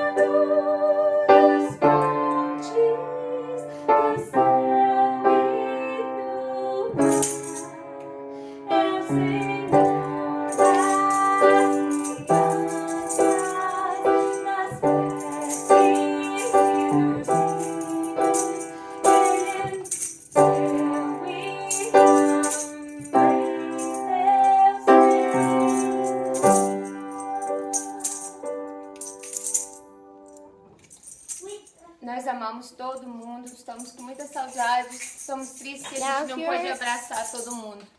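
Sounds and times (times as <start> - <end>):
toy shaker rattling: 7.0 - 7.7, 9.7 - 32.0, 32.8 - 37.9.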